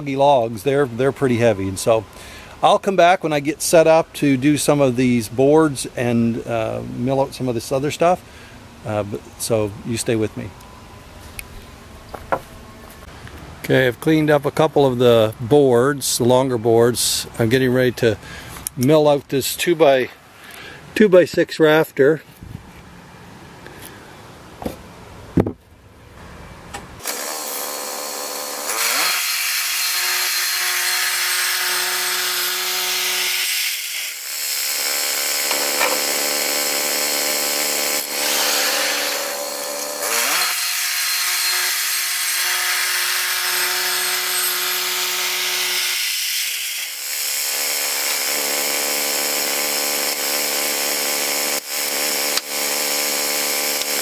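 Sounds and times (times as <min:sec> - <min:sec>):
bandsaw blade cutting log: 0:27.0 - 0:54.0
sawmill engine running: 0:46.9 - 0:54.0.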